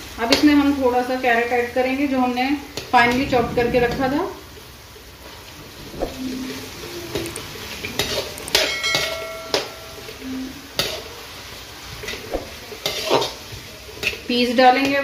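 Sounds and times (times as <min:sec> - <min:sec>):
vegetables sizzling in oil: 0:00.0 - 0:02.9, 0:05.7 - 0:15.0
spoon and bowl clinking on metal pan: 0:08.5 - 0:10.2.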